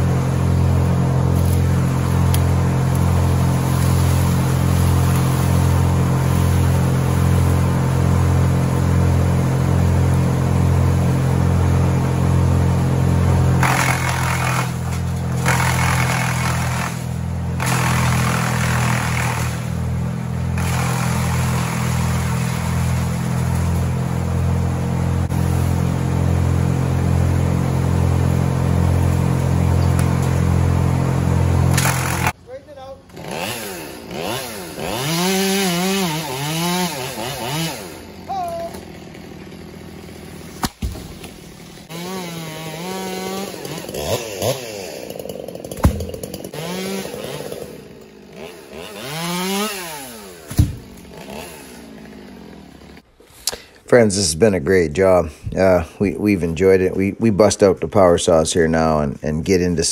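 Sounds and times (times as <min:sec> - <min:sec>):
wood chipper engine running: 0:00.0 - 0:59.9.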